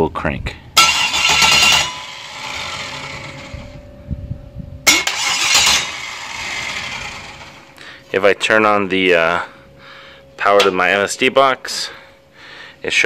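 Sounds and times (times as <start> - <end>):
starter motor cranking: 0.8 - 3.7, 4.9 - 7.7.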